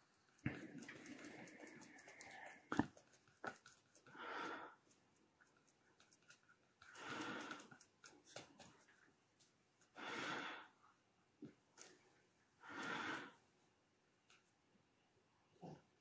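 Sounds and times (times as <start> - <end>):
person breathing slowly: 0.4 - 2.9, 4.0 - 4.9, 6.8 - 7.9, 9.9 - 10.8, 12.6 - 13.5.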